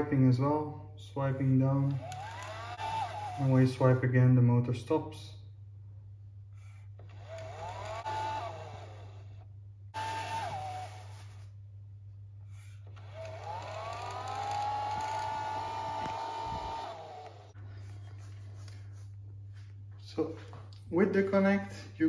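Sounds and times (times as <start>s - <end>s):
blind motor whining: 1.9s - 3.8s, 6.7s - 11.6s, 12.7s - 17.6s.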